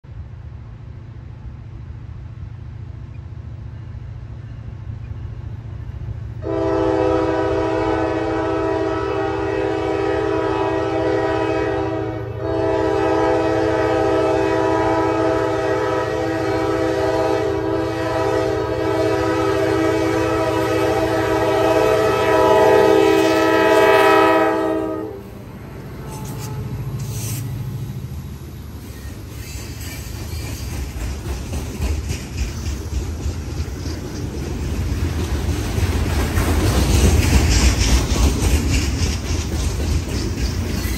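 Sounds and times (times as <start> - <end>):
train rumbling past: 0.0 - 40.9
locomotive air horn blasts: 6.4 - 27.4.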